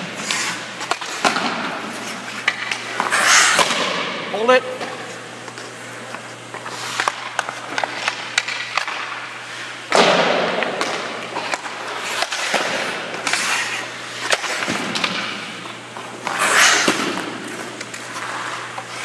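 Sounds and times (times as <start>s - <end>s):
skate blades scraping ice: 0.0s - 4.6s, 6.5s - 19.0s
stick and pucks tapping ice: 6.9s - 9.2s, 9.9s - 13.5s.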